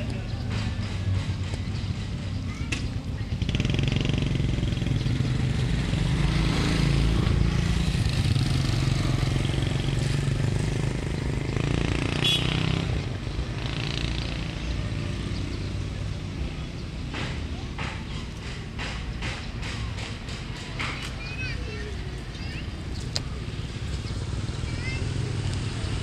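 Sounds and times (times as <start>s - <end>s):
engine running: 0.0s - 19.0s.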